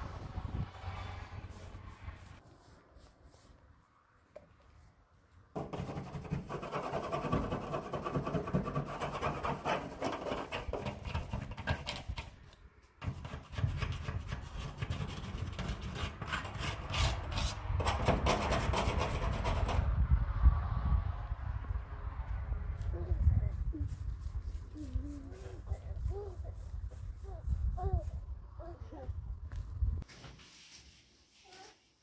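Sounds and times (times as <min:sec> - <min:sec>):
rubbing and scraping on wood: 0:05.6 - 0:19.9.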